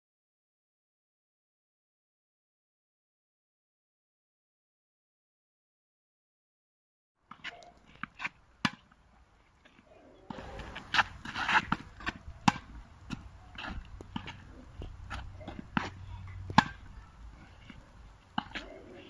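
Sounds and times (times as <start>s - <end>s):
tennis ball struck and bouncing: 7.3s - 9.0s, 10.3s - 17.8s, 18.4s - 18.7s.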